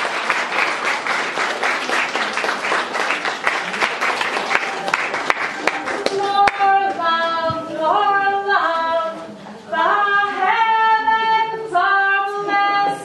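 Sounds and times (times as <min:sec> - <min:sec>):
woman singing unaccompanied: 0:06.0 - 0:13.0.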